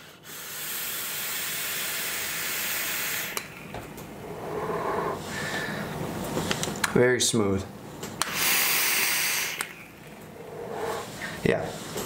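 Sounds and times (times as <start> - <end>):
air hissing through atomizer: 0.0 - 3.6, 8.2 - 12.0
breathy exhale: 4.4 - 6.0.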